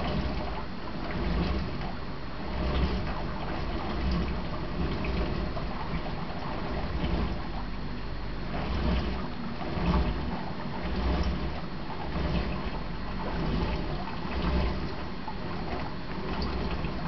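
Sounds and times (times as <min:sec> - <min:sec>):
low rumble with hiss: 0:00.0 - 0:17.0.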